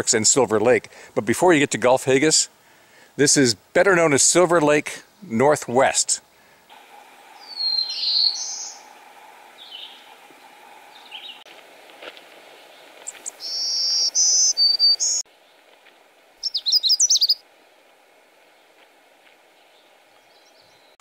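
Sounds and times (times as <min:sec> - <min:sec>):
high buzzy warbler song: 0:07.3 - 0:11.4, 0:12.6 - 0:15.2, 0:16.4 - 0:17.4
rising buzzy warbler phrase: 0:07.4 - 0:11.4
quick jumbled bird warble: 0:16.4 - 0:17.4.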